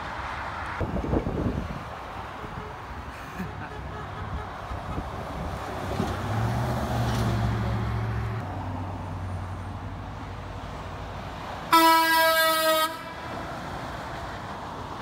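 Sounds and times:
truck horn blast: 0:11.7 - 0:13.3.

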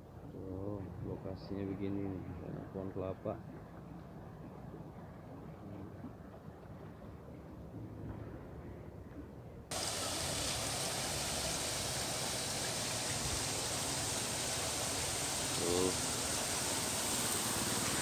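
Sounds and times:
water rushing: 0:09.7 - 0:18.0.

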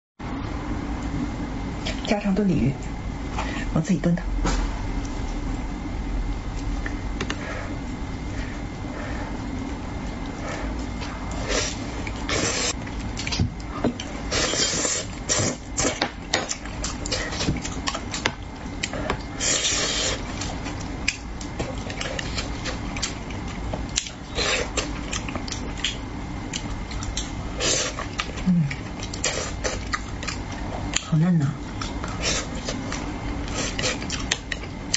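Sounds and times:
wet chewing: 0:09.6 - 0:31.1, 0:31.7 - 0:34.9.

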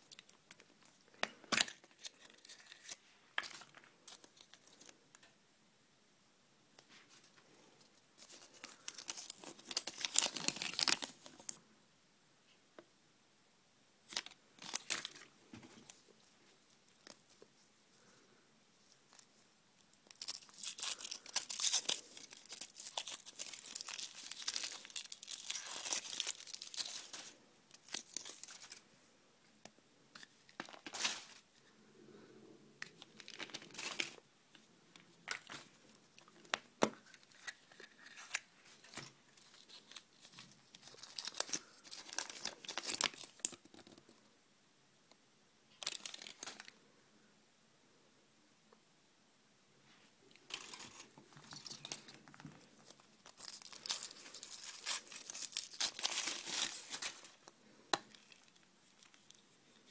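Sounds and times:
foil wrapper crinkling and tearing: 0:01.5 - 0:04.9, 0:08.2 - 0:11.6, 0:14.1 - 0:16.0, 0:20.0 - 0:28.8, 0:33.2 - 0:34.2, 0:35.3 - 0:44.0, 0:45.7 - 0:46.7, 0:50.5 - 0:59.9.

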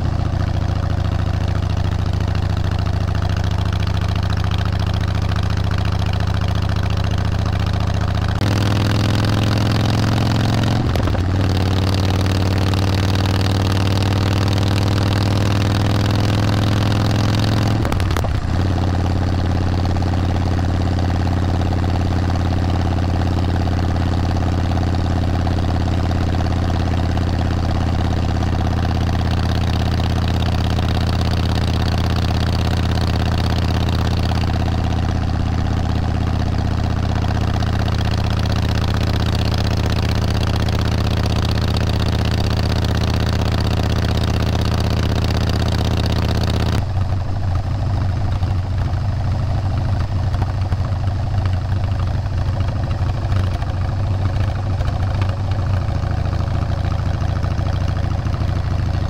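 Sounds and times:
vehicle engine droning: 0:00.0 - 0:59.0.

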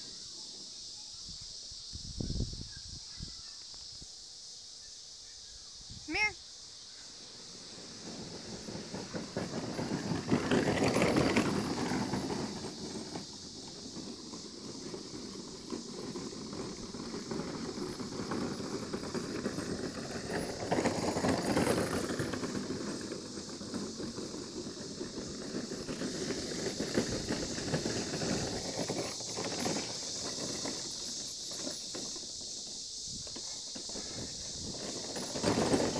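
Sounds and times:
plastic wagon rattling over grass: 0:07.1 - 0:35.9.

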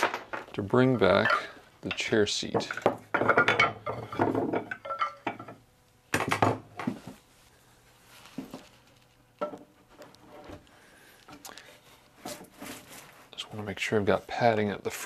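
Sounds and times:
metal tools clinking: 0:02.7 - 0:05.4
knocks on workbench: 0:06.2 - 0:07.0.

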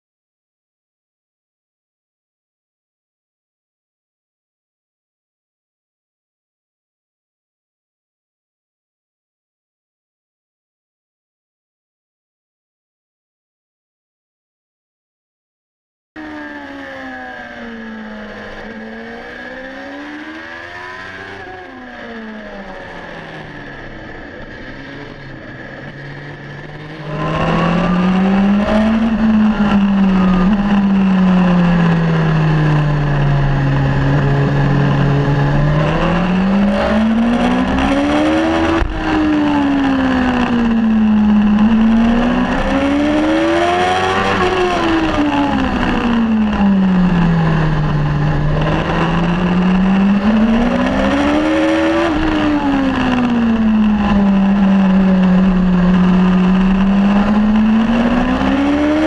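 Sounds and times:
motorcycle engine revving: 0:16.2 - 0:59.0.

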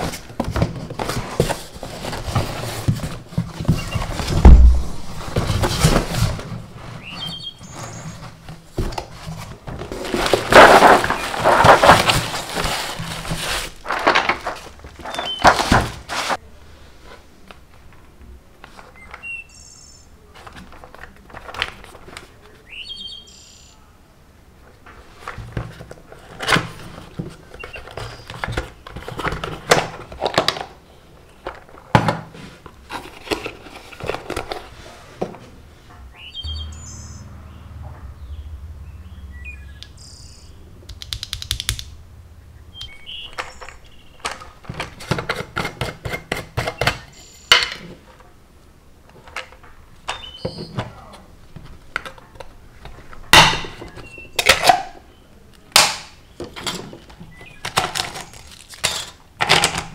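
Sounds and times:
cardboard and paper rustling: 0:00.0 - 0:19.1, 0:20.2 - 0:22.7, 0:24.8 - 0:35.6, 0:43.3 - 0:48.3, 0:56.4 - 0:59.9
birds chirping faintly: 0:06.9 - 0:08.4, 0:15.0 - 0:15.7, 0:18.2 - 0:20.3, 0:22.2 - 0:24.1, 0:35.9 - 0:44.6, 0:49.7 - 0:51.3, 0:53.8 - 0:58.4.

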